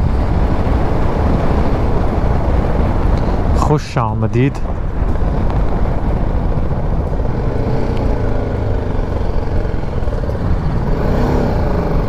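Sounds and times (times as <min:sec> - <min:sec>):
wind and road noise: 0:00.0 - 0:12.0
motorcycle engine running: 0:04.7 - 0:12.0.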